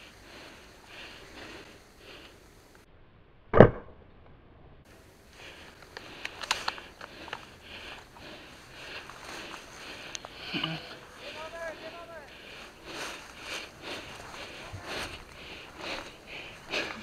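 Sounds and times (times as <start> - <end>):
rustling: 5.2 - 17.0
small clicks: 5.8 - 7.5.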